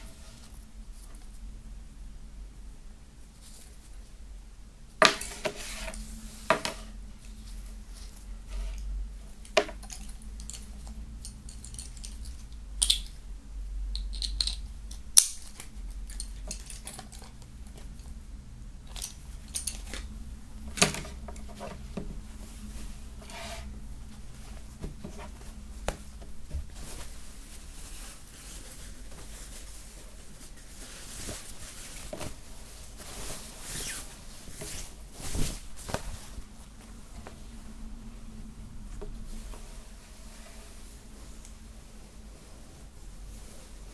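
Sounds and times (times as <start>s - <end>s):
fabric flag rustling: 19.2s - 43.9s.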